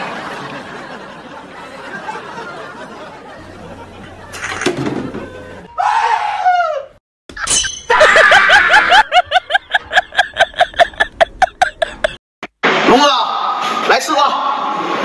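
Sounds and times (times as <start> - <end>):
noisy crash: 12.5 - 13.9.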